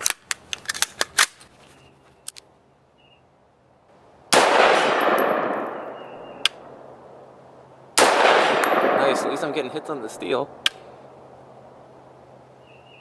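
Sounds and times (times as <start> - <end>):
loud gunshot: 4.3 - 6.2, 8.0 - 9.9.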